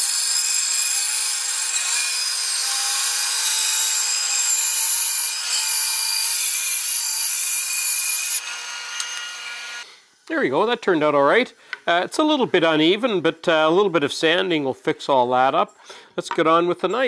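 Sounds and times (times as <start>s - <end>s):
bandsaw cutting wood: 0.0s - 9.9s
bandsaw running: 0.0s - 9.9s.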